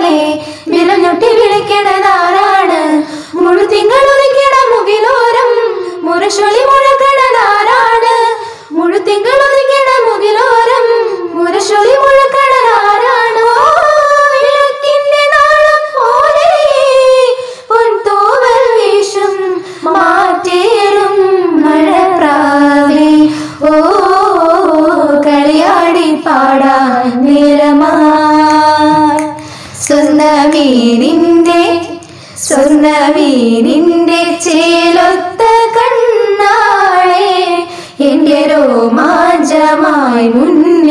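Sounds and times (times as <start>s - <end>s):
women singing unaccompanied: 0.0s - 40.9s
singers breathing: 0.4s - 0.7s, 3.0s - 3.4s, 8.3s - 8.8s, 17.3s - 17.7s, 19.5s - 19.9s, 23.2s - 23.6s, 29.3s - 29.9s, 32.0s - 32.5s, 37.6s - 38.0s.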